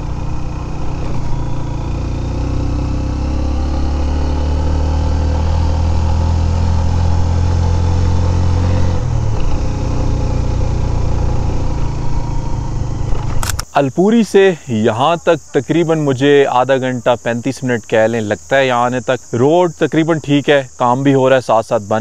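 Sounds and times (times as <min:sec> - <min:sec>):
motorcycle engine running: 0:00.0 - 0:13.6.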